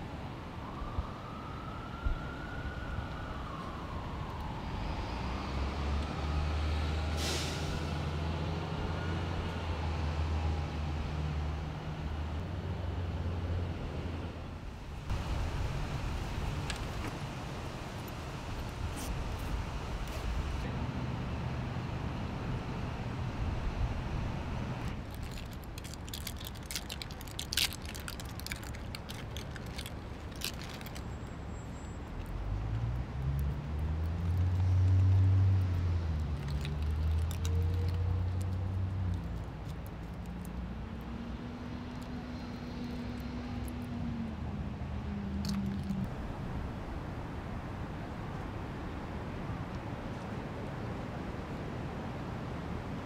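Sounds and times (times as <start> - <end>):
air brake hiss: 7.1 - 8.0
heavy vehicle engine rumbling: 11.6 - 25.1
plastic bag crinkling: 25.0 - 31.0, 36.4 - 38.5.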